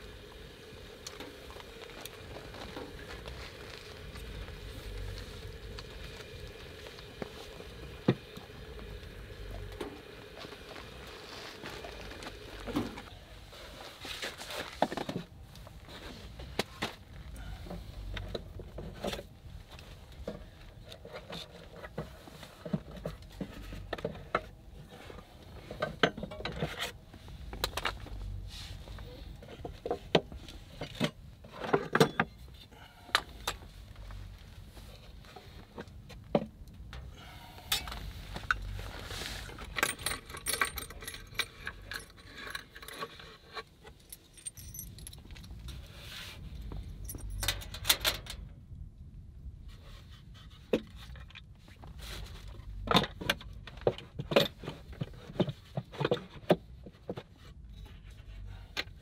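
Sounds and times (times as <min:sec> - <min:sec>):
small metallic jingling: 0:39.6 - 0:43.2, 0:43.9 - 0:45.8, 0:46.9 - 0:48.2.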